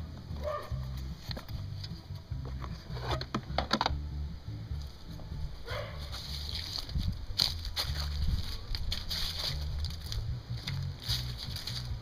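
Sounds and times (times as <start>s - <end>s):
low rumble: 0.0s - 12.0s
rustling on dry leaves: 4.8s - 12.0s.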